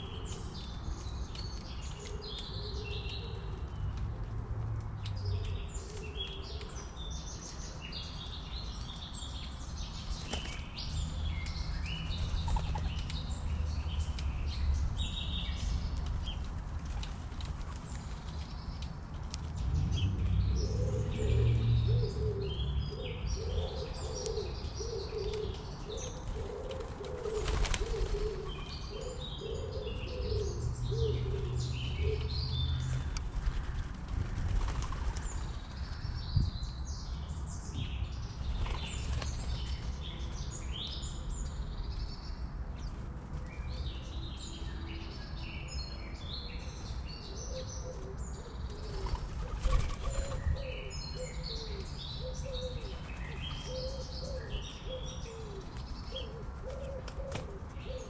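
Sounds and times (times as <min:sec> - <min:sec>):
small birds chirping: 0:00.0 - 0:04.2, 0:04.9 - 0:58.0
dove cooing: 0:20.6 - 0:32.3, 0:47.3 - 0:58.0.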